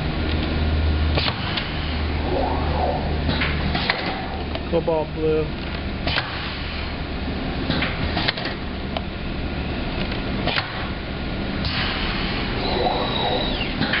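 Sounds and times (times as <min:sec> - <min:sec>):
printing press machine noise: 0:00.0 - 0:09.0, 0:09.8 - 0:14.0
rush of noise: 0:01.7 - 0:04.6
thin high squeal: 0:12.6 - 0:13.8.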